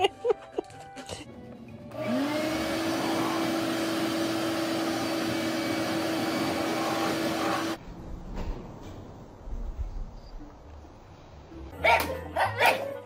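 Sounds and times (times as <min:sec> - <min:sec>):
shop vacuum running: 0:01.9 - 0:07.8.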